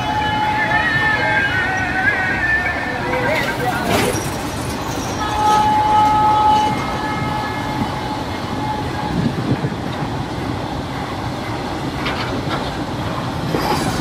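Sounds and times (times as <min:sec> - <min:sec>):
locomotive horn: 0:00.0 - 0:04.0, 0:05.2 - 0:09.5
train wheels rumbling on rails: 0:00.0 - 0:14.0.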